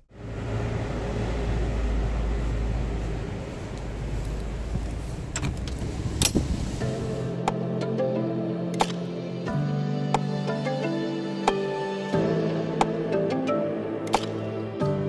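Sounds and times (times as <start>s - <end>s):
car engine and road noise: 0.0s - 7.6s
sharp clicks: 8.7s - 9.1s, 14.0s - 14.4s.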